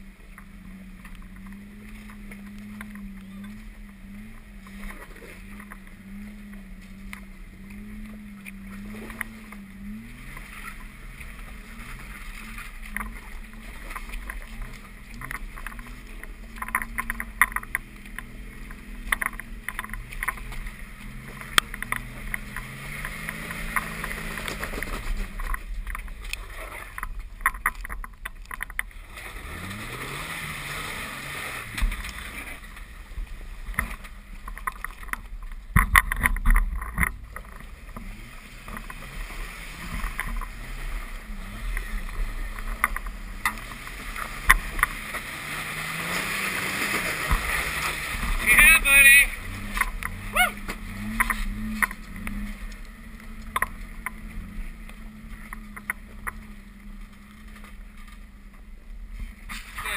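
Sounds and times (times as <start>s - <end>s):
engine revving: 0.0s - 59.9s
tyres knocking and scraping on rock: 12.5s - 28.9s.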